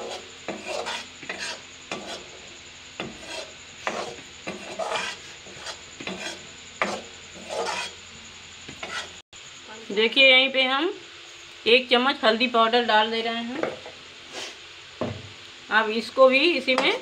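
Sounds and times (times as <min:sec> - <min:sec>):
steel spatula scraping a pan: 0:00.0 - 0:08.1, 0:08.7 - 0:09.2.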